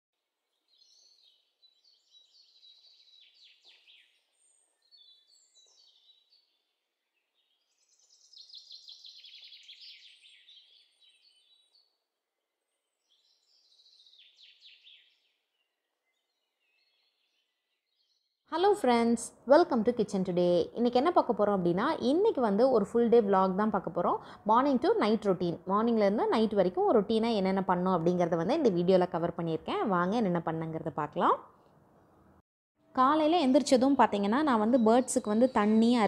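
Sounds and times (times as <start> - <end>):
faint birds chirping: 0.2 - 18.4.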